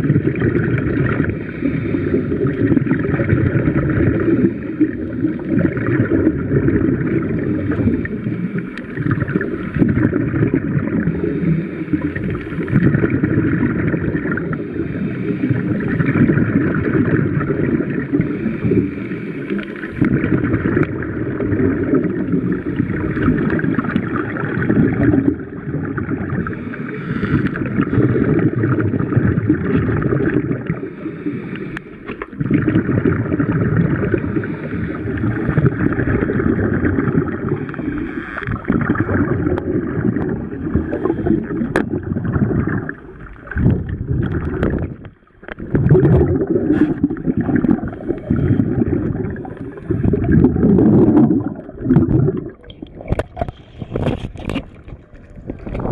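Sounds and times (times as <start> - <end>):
underwater rushing bubbling water: 0.0 - 55.9.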